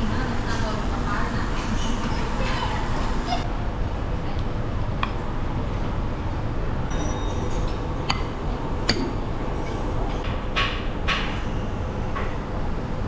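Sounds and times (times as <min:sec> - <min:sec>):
restaurant din: 0:00.0 - 0:12.7
tableware clinking: 0:06.9 - 0:10.3.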